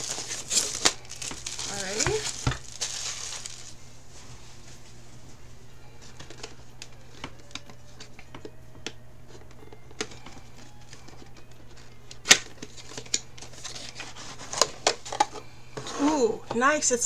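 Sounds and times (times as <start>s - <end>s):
cardboard box being handled: 0.0s - 3.8s.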